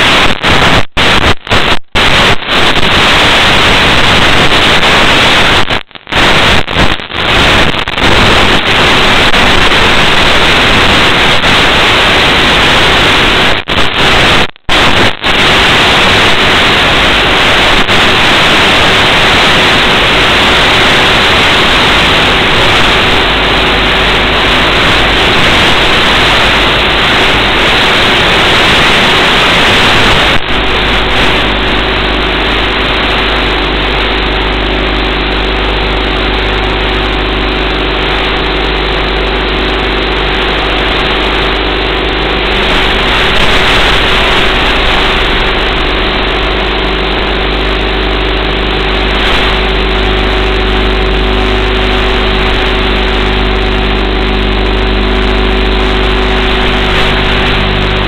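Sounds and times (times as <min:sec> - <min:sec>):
loud steady hiss: 0:00.0 - 0:58.0
boat motor humming: 0:30.5 - 0:58.0.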